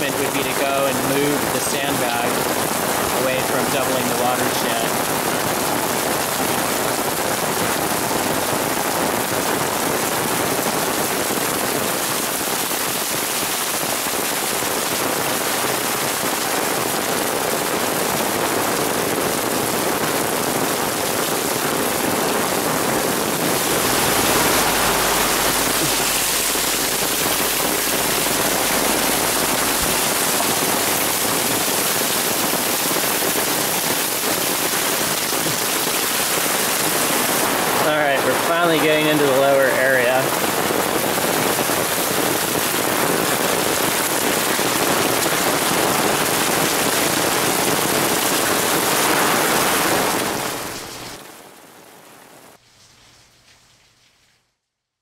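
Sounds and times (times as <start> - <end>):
heavy rain: 0.0 - 52.6
low rumble: 23.4 - 32.0.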